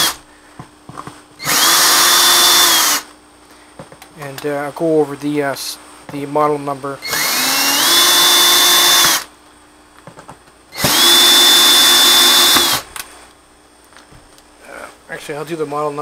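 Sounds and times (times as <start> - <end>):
power drill whining: 0.0 - 0.2, 1.4 - 3.1, 7.0 - 9.3, 10.7 - 12.9.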